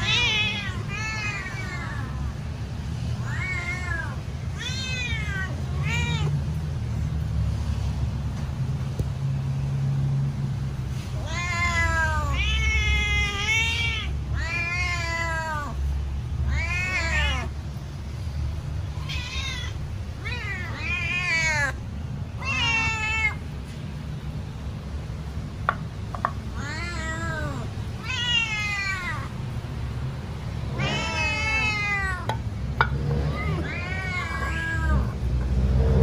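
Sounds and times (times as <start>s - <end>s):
cat meowing: 0.0s - 2.4s, 3.1s - 6.4s, 11.2s - 17.6s, 19.0s - 21.8s, 22.4s - 23.4s, 26.5s - 29.4s, 30.7s - 32.4s, 33.2s - 35.3s.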